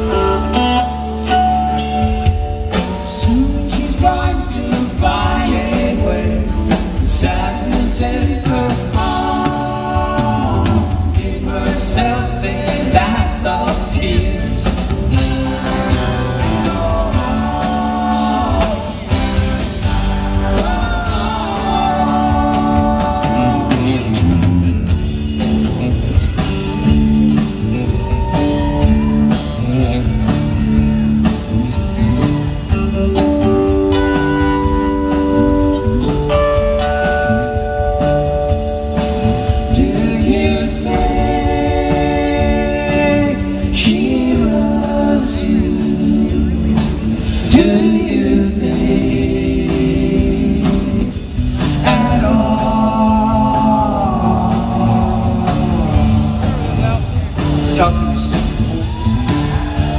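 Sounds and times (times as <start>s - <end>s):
person singing: 0.0s - 24.4s, 37.0s - 57.2s
rock band playing: 0.0s - 59.9s.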